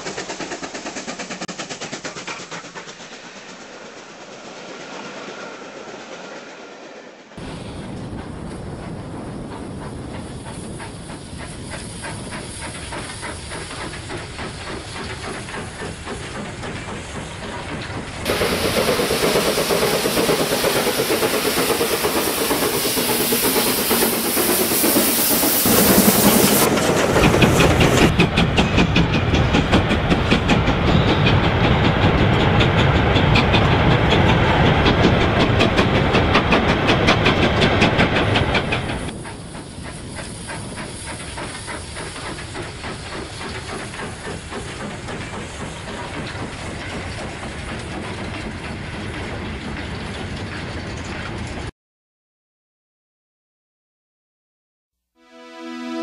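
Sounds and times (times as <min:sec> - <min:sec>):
train running on track: 0:00.0 - 0:51.7
loud hiss of escaping steam: 0:09.5 - 0:17.6, 0:18.2 - 0:28.1, 0:37.4 - 0:47.8.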